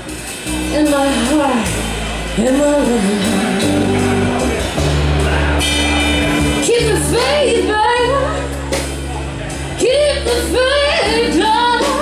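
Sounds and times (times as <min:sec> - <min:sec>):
bass guitar: 0:00.0 - 0:12.0
drum kit: 0:00.0 - 0:12.0
electric guitar: 0:00.0 - 0:12.0
woman singing: 0:00.6 - 0:01.8, 0:02.4 - 0:04.4, 0:06.6 - 0:08.8, 0:09.8 - 0:12.0.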